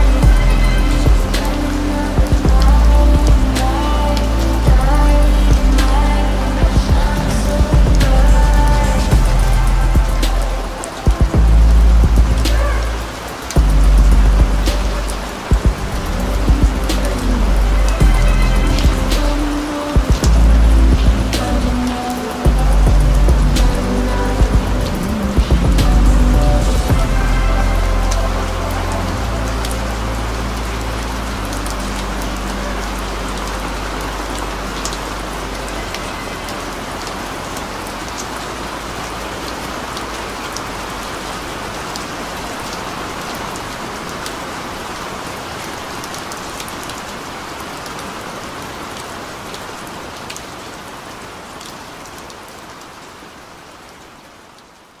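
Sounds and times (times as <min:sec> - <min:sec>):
low held bass note: 0:00.0 - 0:10.7, 0:13.6 - 0:19.6
steady rain: 0:00.0 - 0:55.0.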